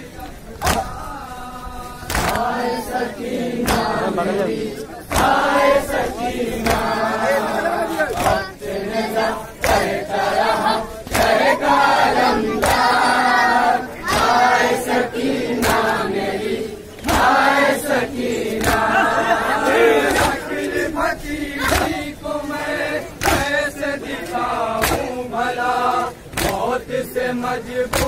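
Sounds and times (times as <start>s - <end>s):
men chanting a lament: 0.0s - 28.0s
hand slaps on chest: 0.6s - 1.0s, 2.1s - 2.5s, 3.6s - 4.0s, 5.1s - 5.4s, 18.6s - 18.9s, 23.2s - 23.5s, 24.8s - 25.1s, 26.3s - 26.7s.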